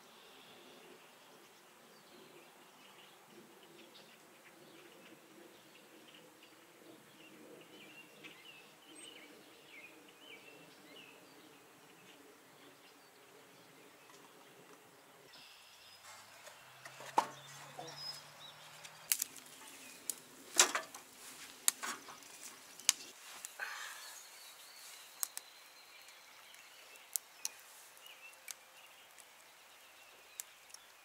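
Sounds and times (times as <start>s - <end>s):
wood fire crackling and popping: 18.7s - 25.5s, 26.1s - 29.5s, 30.2s - 31.0s
faint bird calls: 21.2s - 29.2s.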